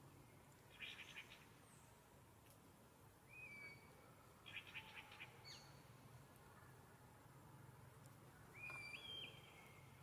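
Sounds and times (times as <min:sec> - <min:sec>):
faint bird calls: 0:03.2 - 0:05.8, 0:08.3 - 0:10.0.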